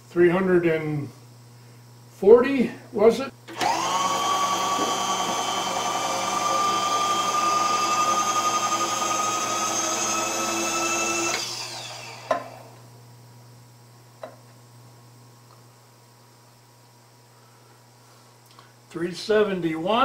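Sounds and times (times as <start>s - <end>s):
milling machine whining: 3.5s - 12.8s.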